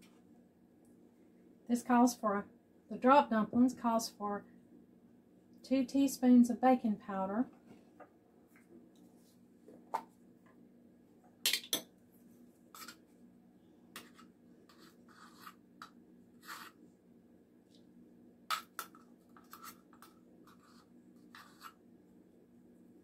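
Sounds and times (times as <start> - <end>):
spoon scraping and tapping powder: 12.8 - 13.0, 14.0 - 16.8, 18.5 - 21.8.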